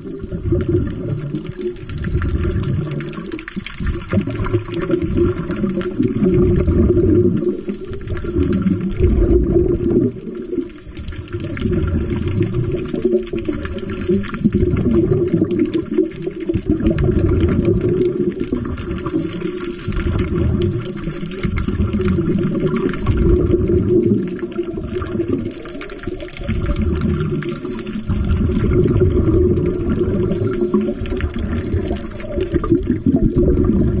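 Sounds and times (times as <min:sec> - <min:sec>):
underwater exhaled bubbles: 0:00.0 - 0:34.0.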